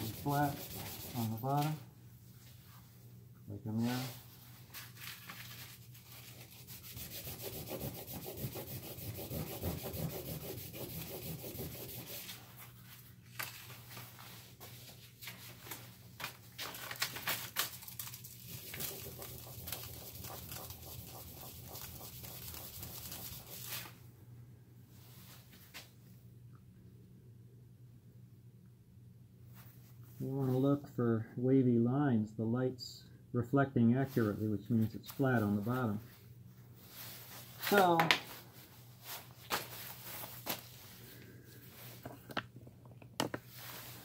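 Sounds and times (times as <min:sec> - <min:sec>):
scratchy sanding on sandpaper: 0:00.0 - 0:01.7, 0:06.0 - 0:12.4, 0:18.5 - 0:23.8.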